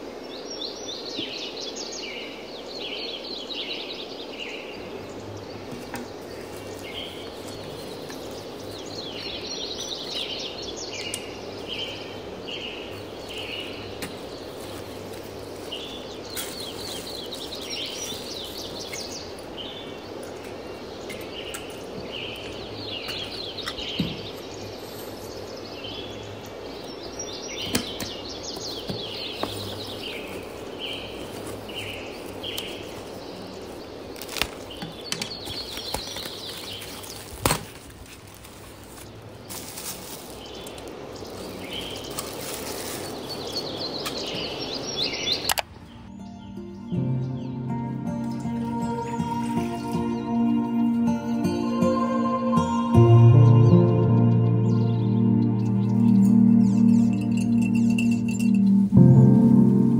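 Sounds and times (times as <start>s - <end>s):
steady background hiss: 0.0s - 53.3s
birds chirping: 0.0s - 59.9s.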